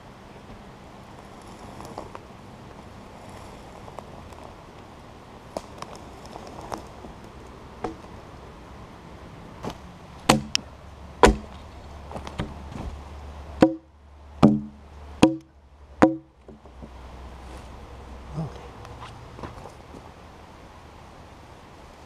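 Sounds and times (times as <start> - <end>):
axe striking log: 10.2 - 11.6, 13.6 - 16.6.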